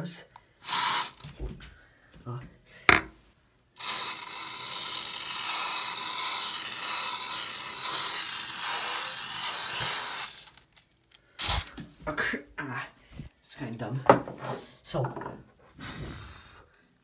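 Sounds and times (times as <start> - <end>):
aerosol can spraying hiss: 0.6 - 1.3, 3.8 - 10.6, 11.4 - 11.9.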